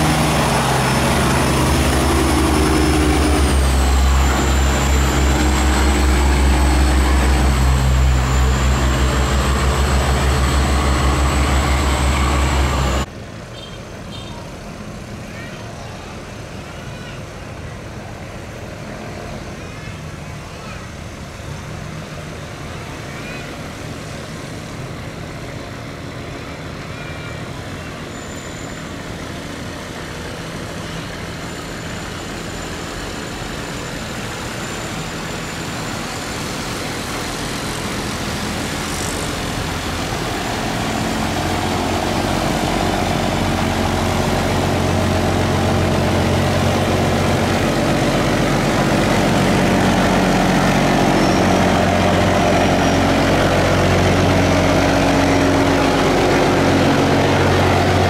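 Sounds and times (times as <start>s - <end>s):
boat engine running: 0.0s - 13.1s, 37.6s - 58.0s.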